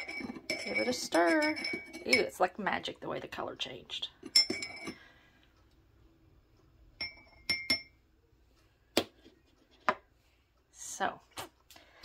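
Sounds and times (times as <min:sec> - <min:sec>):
spoon clinking against mug: 0:00.0 - 0:02.4, 0:04.2 - 0:05.0, 0:07.0 - 0:08.0.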